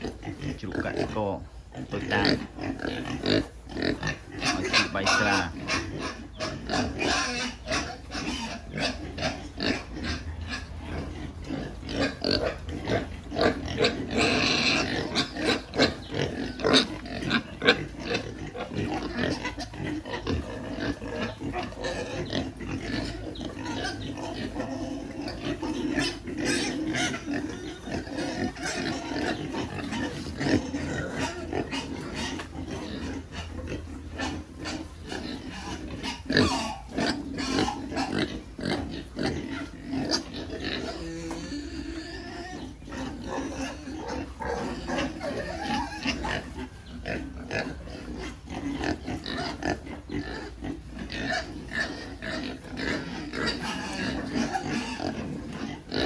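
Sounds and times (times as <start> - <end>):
pigs grunting and snuffling: 0.0 - 56.0
pig high-pitched cry: 1.8 - 56.0.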